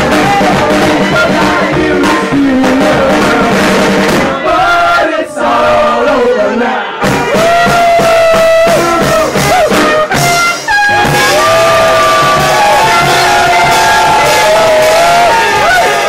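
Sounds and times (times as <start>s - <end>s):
guitar: 0.0s - 4.6s, 7.0s - 16.0s
steady drum beat: 0.0s - 6.3s, 7.0s - 16.0s.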